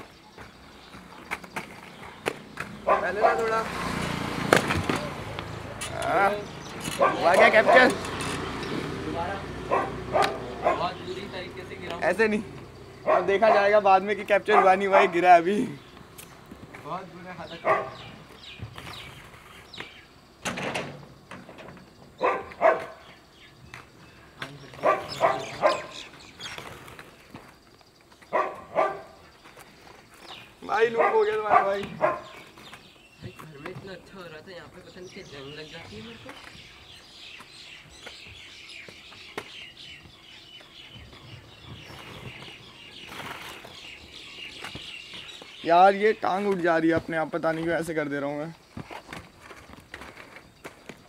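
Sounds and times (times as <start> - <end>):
small birds chirping: 0.0 - 20.4, 21.0 - 51.0
dog barking: 2.8 - 3.6, 7.0 - 7.8, 9.7 - 11.0, 13.0 - 13.7, 14.5 - 15.2, 17.6 - 18.1, 22.2 - 23.0, 24.8 - 26.0, 28.3 - 29.2, 30.9 - 32.4.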